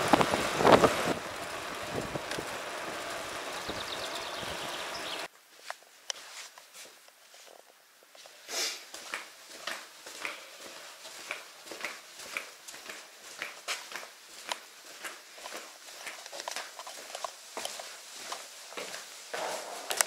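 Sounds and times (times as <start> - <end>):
footsteps in small room: 5.4 - 20.0.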